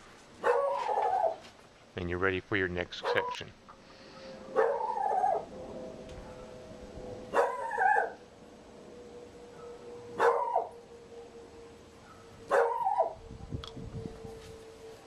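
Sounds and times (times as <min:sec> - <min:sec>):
dog barking: 0:00.4 - 0:01.4, 0:03.0 - 0:03.4, 0:04.6 - 0:04.9, 0:07.3 - 0:08.2, 0:09.6 - 0:10.7, 0:12.0 - 0:13.2.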